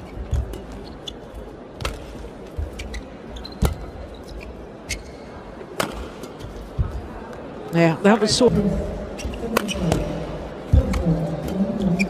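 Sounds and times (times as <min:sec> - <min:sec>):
arena hall hum: 0:00.0 - 0:12.0
sneaker squeaks on court: 0:02.6 - 0:05.4, 0:09.2 - 0:10.1
racquets striking shuttlecock: 0:05.8 - 0:06.4.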